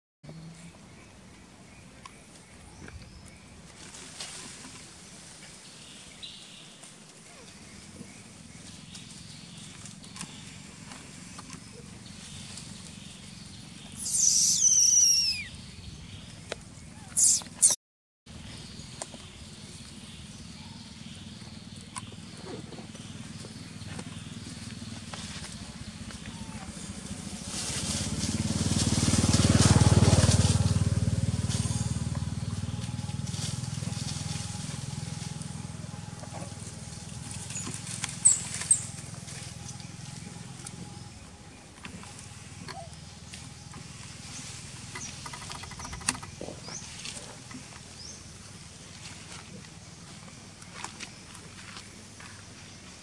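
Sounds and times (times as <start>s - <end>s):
monkey screaming: 14.0s - 15.5s, 17.0s - 17.8s
vehicle engine passing by: 19.5s - 50.2s.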